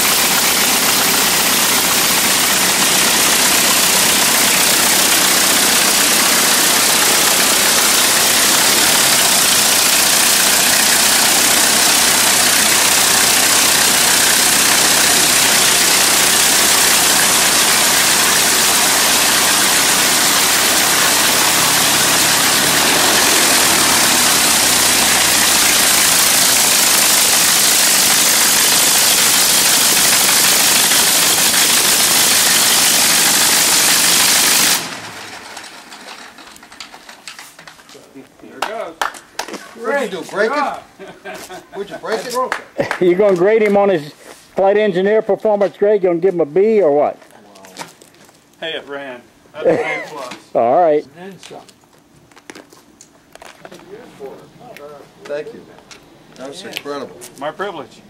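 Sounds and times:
aeroplane engine running loudly: 0:00.0 - 0:35.6.

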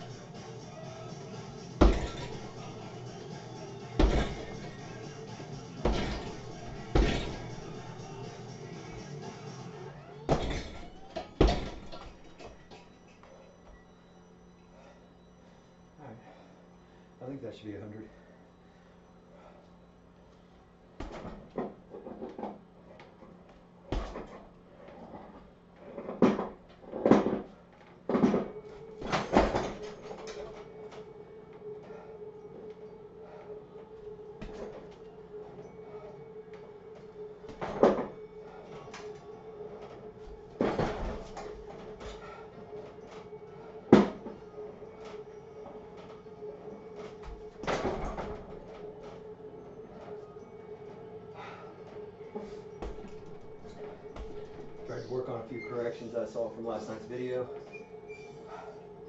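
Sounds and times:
steady hum: 0:00.0 - 0:59.0
punches on swinging bag: 0:01.8 - 0:02.5, 0:04.0 - 0:04.7, 0:05.8 - 0:07.6
kick into heavy bag: 0:01.8 - 0:02.6, 0:04.0 - 0:04.7, 0:05.8 - 0:07.6, 0:10.3 - 0:12.3, 0:23.9 - 0:24.3.

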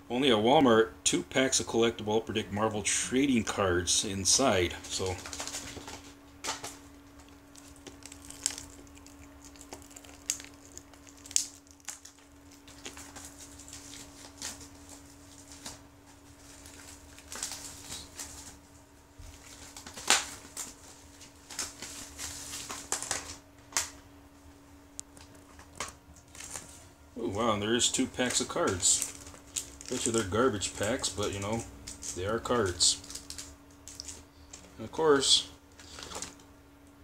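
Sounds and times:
faint hum: 0:00.0 - 0:37.0
plastic packaging crinkling: 0:04.8 - 0:24.0, 0:25.0 - 0:34.7.

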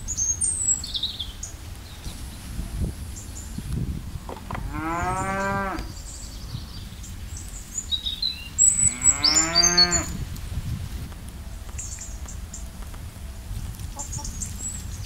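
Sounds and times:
small birds chirping: 0:00.0 - 0:10.2, 0:11.5 - 0:13.0, 0:13.7 - 0:15.0
cow mooing: 0:04.6 - 0:05.9, 0:08.9 - 0:10.2.

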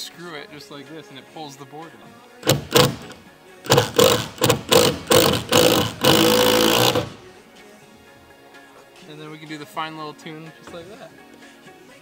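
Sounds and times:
cordless drill driving screw: 0:02.4 - 0:07.3.

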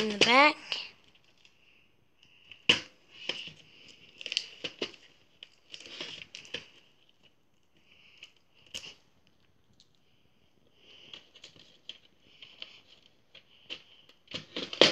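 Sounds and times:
cardboard sleeve scraping and rustling: 0:10.9 - 0:14.9.

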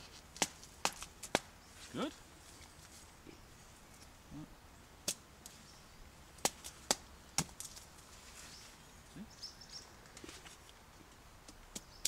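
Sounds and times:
branch cracking: 0:00.0 - 0:01.5, 0:05.0 - 0:05.6, 0:06.4 - 0:08.3.

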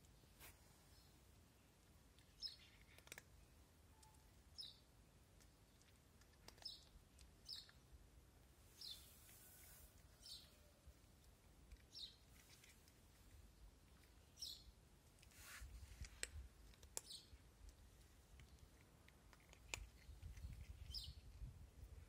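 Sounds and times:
small bird chirping: 0:00.2 - 0:08.0, 0:08.7 - 0:14.8, 0:16.0 - 0:21.6.

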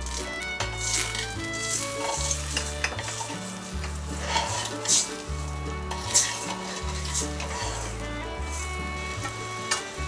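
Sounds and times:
liquid sizzling in a pot: 0:00.0 - 0:10.0.

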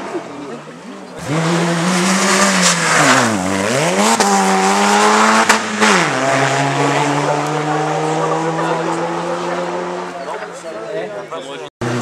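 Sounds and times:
rally car engine revving: 0:01.1 - 0:10.4.

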